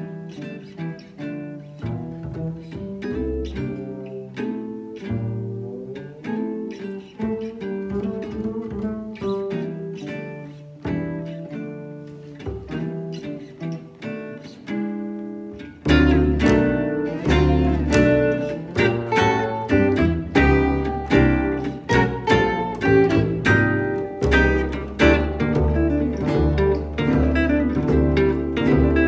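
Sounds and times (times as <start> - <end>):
pizzicato upright bass: 0.0 - 14.7, 15.5 - 29.0
jazz guitars playing swing: 0.0 - 29.0.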